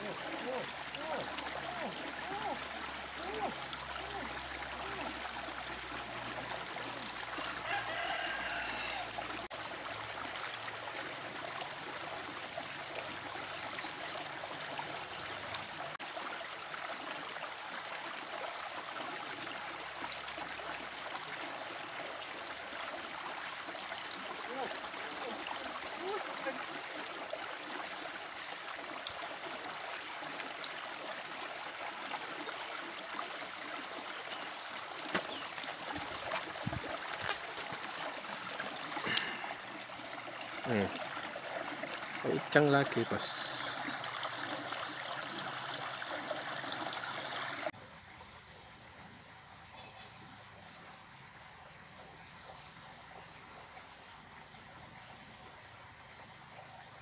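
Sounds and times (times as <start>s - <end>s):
stream trickling over rocks: 0.0s - 57.0s
rooster crowing: 7.4s - 9.2s.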